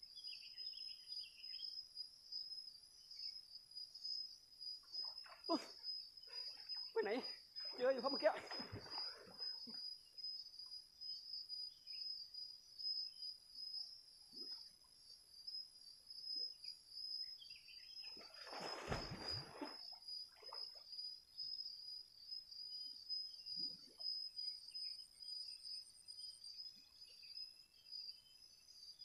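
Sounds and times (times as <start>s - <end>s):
insects chirring: 0.0s - 29.0s
faint water sloshes: 5.0s - 9.8s, 18.1s - 20.8s
loud water splash: 18.4s - 19.8s.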